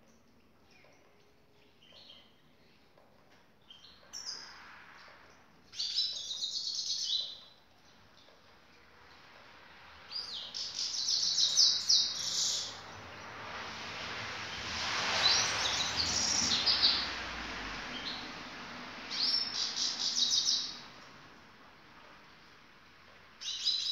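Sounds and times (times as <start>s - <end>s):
goldfinch twittering song: 5.7s - 8.3s, 10.1s - 13.3s, 19.1s - 20.9s, 23.4s - 23.9s
broad rushing noise: 12.2s - 20.1s.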